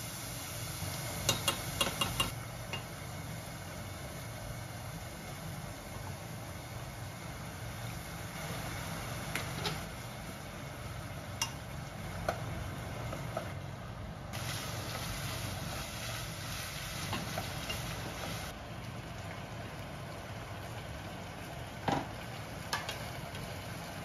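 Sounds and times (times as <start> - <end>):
food sizzling in a pot: 0.0 - 24.0
gas stove low hum: 0.0 - 24.0
kitchenware clinking against pot: 1.3 - 2.9.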